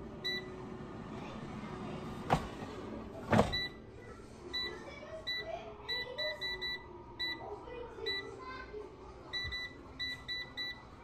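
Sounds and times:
air fryer control panel beeping: 0:00.2 - 0:00.6, 0:03.4 - 0:03.8, 0:04.6 - 0:07.4, 0:09.3 - 0:11.0.

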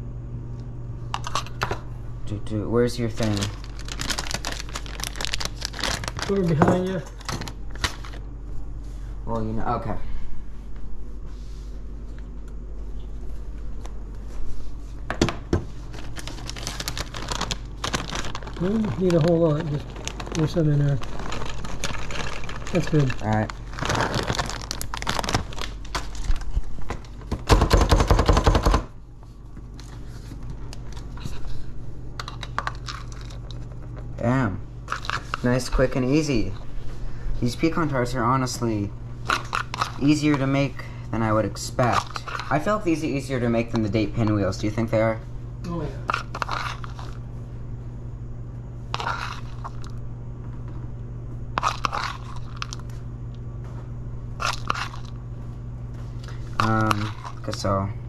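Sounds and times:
plastic bag crinkling: 0:03.0 - 0:08.2, 0:15.9 - 0:26.8, 0:48.9 - 0:50.0, 0:51.6 - 0:53.0, 0:56.2 - 0:57.8
spoon scraping nuts in plastic bowl: 0:46.1 - 0:47.2, 0:48.9 - 0:49.9, 0:51.6 - 0:52.8, 0:54.4 - 0:55.1, 0:56.6 - 0:57.7.

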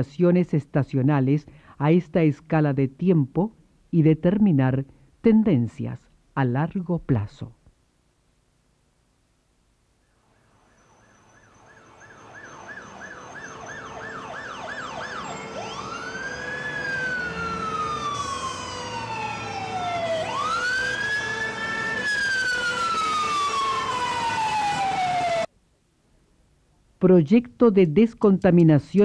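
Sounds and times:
fire engine siren: 0:10.2 - 0:25.5
traffic noise: 0:10.2 - 0:25.5.

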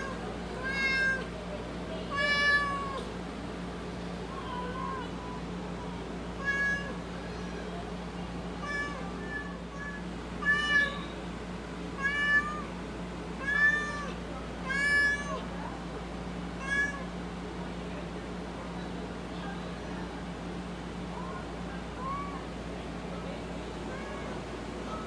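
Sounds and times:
cat meowing: 0:00.0 - 0:01.3, 0:02.1 - 0:03.1, 0:06.4 - 0:07.7, 0:08.6 - 0:11.2, 0:12.0 - 0:12.7, 0:13.4 - 0:15.4, 0:16.6 - 0:17.1
steady low hum: 0:00.0 - 0:25.0.

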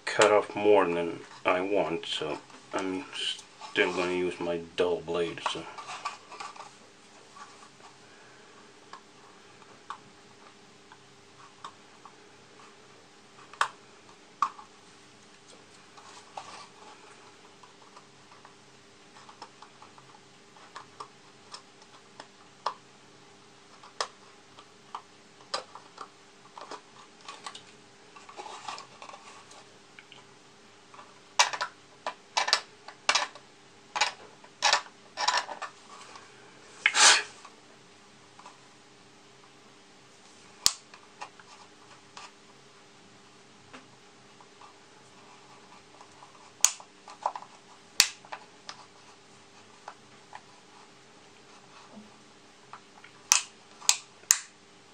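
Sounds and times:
knife scraping plastic: 0:36.8 - 0:37.5.

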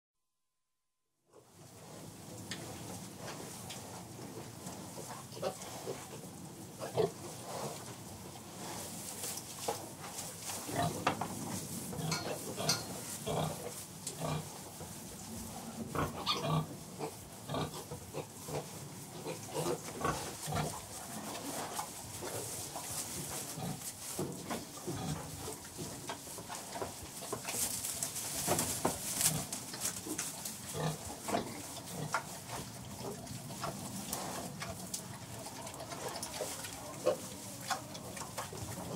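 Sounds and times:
rustling: 0:01.6 - 0:38.9
pigs grunting: 0:12.0 - 0:14.6, 0:15.6 - 0:22.6, 0:29.2 - 0:38.9.

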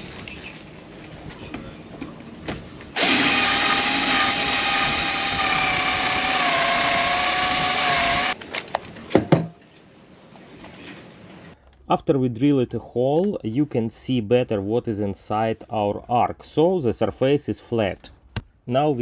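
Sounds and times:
cordless drill boring fiberglass: 0:03.0 - 0:08.4.

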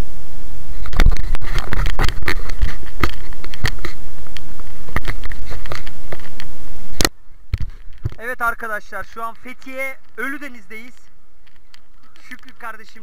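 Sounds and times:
knocks and rubbing on camera: 0:00.8 - 0:04.0, 0:04.6 - 0:06.5
camera handling rumble: 0:00.8 - 0:08.3, 0:10.0 - 0:12.8.

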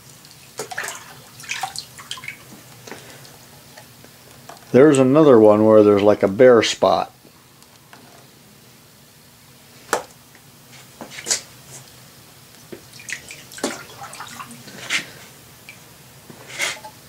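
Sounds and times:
water dripping: 0:00.0 - 0:02.7, 0:12.7 - 0:14.7.

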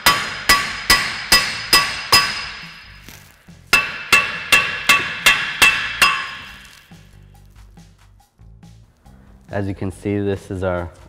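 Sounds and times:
hammer striking metal hub: 0:00.0 - 0:03.0, 0:03.7 - 0:07.0.

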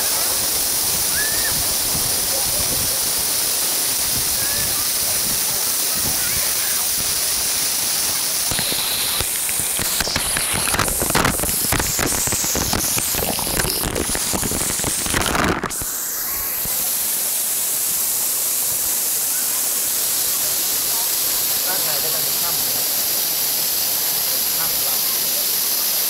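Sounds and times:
water splattering on microphone: 0:00.0 - 0:17.1
waterfall rushing: 0:00.0 - 0:26.0.

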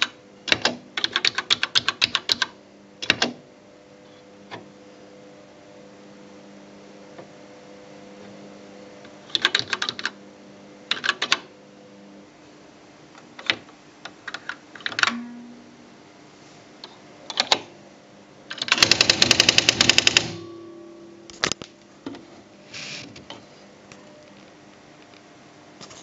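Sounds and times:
typewriter print wheel strikes: 0:18.5 - 0:20.7.

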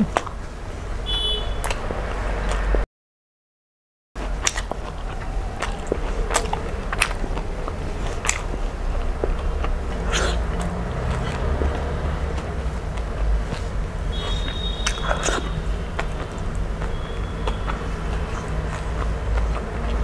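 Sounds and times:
steady low rumble: 0:04.2 - 0:20.0
wet mouth clicks while chewing: 0:04.2 - 0:20.0.

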